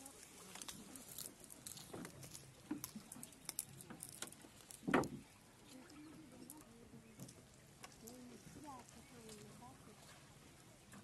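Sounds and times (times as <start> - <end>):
cast net clicking and rustling: 0.0 - 5.3
thump in wooden boat: 4.8 - 5.3.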